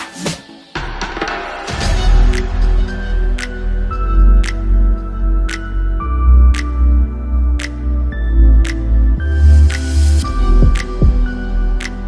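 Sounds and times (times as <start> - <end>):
deep bass: 1.7 - 12.0.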